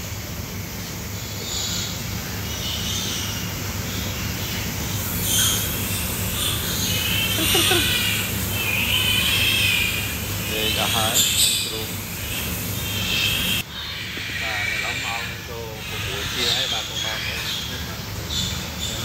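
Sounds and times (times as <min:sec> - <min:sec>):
steady low hum: 0:00.0 - 0:19.0
piglets squealing: 0:05.2 - 0:17.8.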